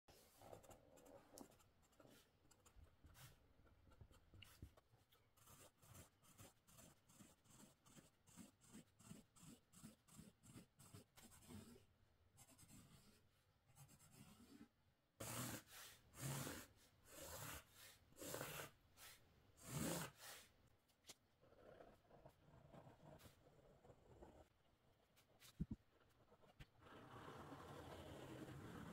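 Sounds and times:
pen scratching on canvas: 5.4 - 11.8, 12.4 - 18.8, 21.4 - 24.5, 25.2 - 28.9.

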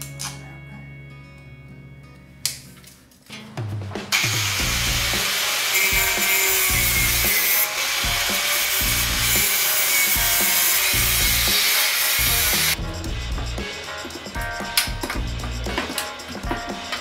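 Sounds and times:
background music with beat: 3.5 - 17.0
angle grinder cutting steel: 4.1 - 12.8.

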